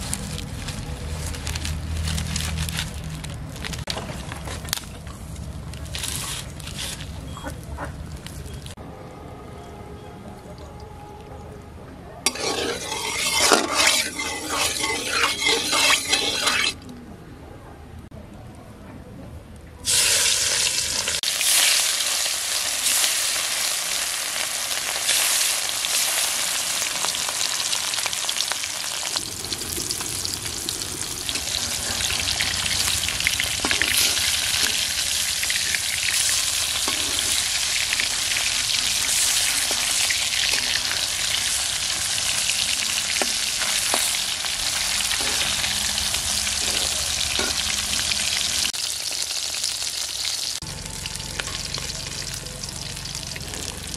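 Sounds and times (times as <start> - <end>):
fish sizzling in hot oil: 12.3 - 16.8, 19.9 - 53.9
metal spatula scraping pan: 12.3 - 16.8, 33.6 - 48.7.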